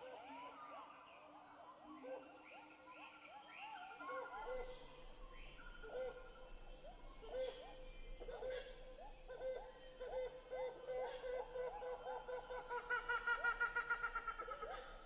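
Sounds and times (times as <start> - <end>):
chirps and trills: 4.2 - 15.0.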